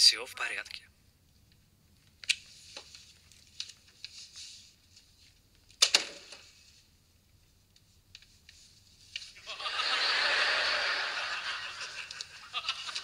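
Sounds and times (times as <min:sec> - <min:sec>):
soft rustling: 0:01.9 - 0:05.6, 0:06.4 - 0:09.4.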